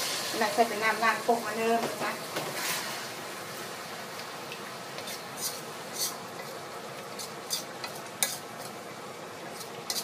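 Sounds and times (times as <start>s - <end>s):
steady sizzle: 0.0s - 10.0s
spatula scraping a wok: 2.3s - 3.2s, 5.0s - 8.8s, 9.4s - 10.0s.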